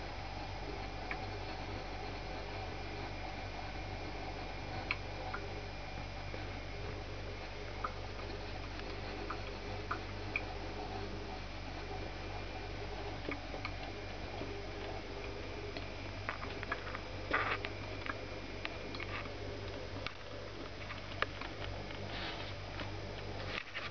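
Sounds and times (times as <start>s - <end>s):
low hum: 0.0s - 23.9s.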